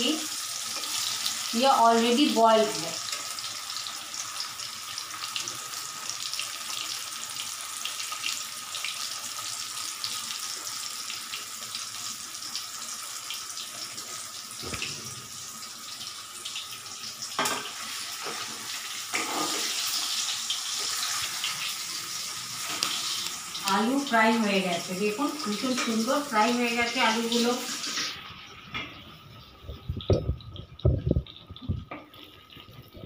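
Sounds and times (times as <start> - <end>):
hot oil sizzling: 0.0 - 33.0.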